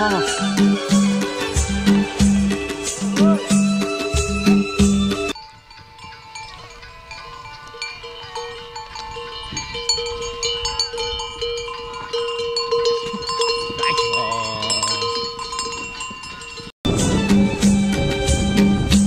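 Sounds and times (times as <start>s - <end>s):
yak neck bells jangling: 5.3s - 16.8s.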